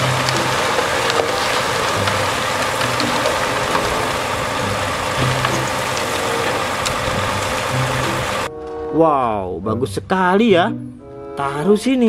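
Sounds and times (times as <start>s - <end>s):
diesel truck engine running: 0.0s - 8.5s
truck unloading soil: 0.0s - 8.5s.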